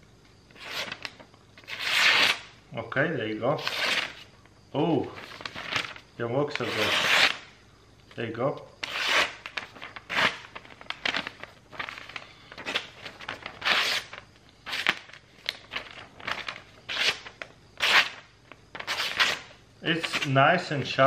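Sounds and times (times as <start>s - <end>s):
paper tearing: 0.6s - 2.4s, 3.6s - 4.2s, 6.6s - 7.4s, 8.8s - 12.0s, 12.6s - 15.1s, 16.2s - 18.2s, 18.8s - 19.5s
knife slicing paper: 1.6s - 2.4s, 3.6s - 4.2s, 6.6s - 7.4s, 8.8s - 10.5s, 13.5s - 15.0s, 16.9s - 18.2s, 18.8s - 19.5s.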